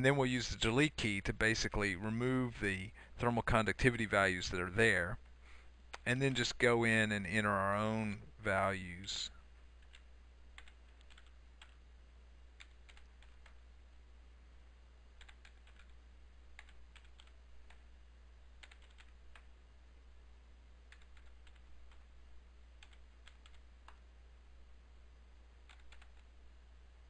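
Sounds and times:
steady low hum: 0.0s - 27.0s
typing on computer keyboard: 9.8s - 11.8s, 12.6s - 13.6s, 15.2s - 16.0s, 16.6s - 17.8s, 18.6s - 19.5s, 20.9s - 22.0s, 22.8s - 24.0s, 25.7s - 26.3s.

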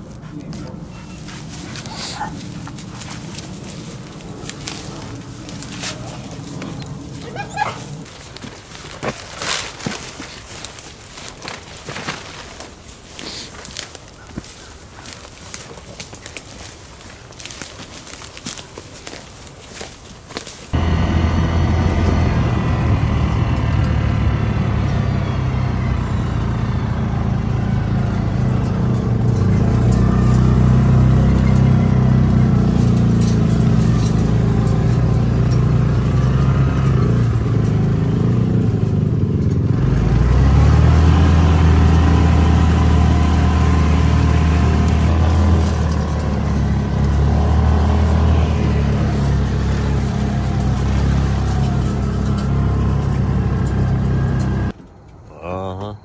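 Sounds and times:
vehicle engine running: 0.0s - 10.2s, 20.7s - 54.8s.

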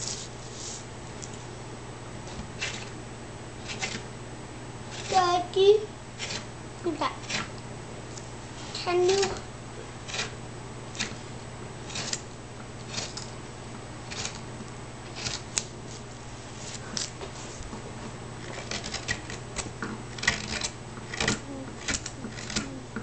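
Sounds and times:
hand carving tool cutting wood: 3.6s - 4.1s, 4.9s - 5.2s, 6.2s - 6.5s, 7.2s - 7.6s, 10.0s - 11.2s, 11.8s - 13.3s, 14.0s - 14.5s, 15.1s - 15.7s, 18.4s - 22.8s.

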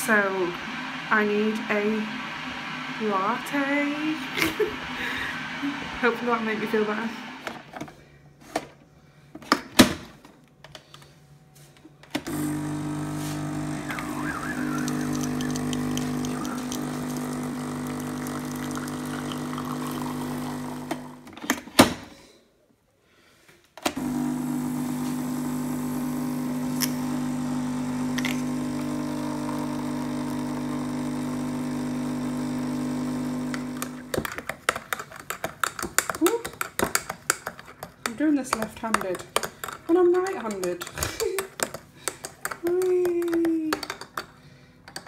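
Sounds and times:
coffee machine pump humming: 12.3s - 21.2s, 24.0s - 34.2s.

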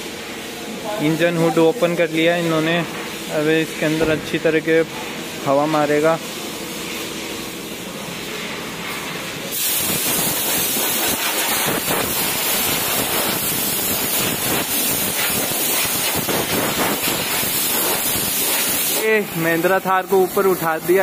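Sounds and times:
compressed air gun hissing: 8.2s - 21.0s.

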